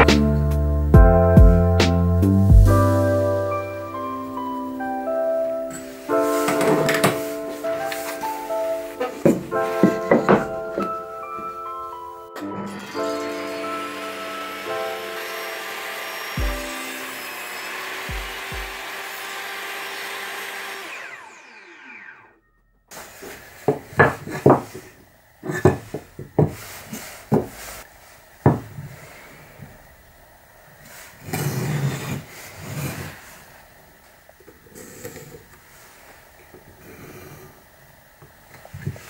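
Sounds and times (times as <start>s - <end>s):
wood rubbing: 6.1s - 11.2s
wooden blocks knocking on workbench: 9.2s - 11.0s, 27.3s - 27.6s, 28.4s - 28.8s
table saw spinning down: 12.4s - 22.4s.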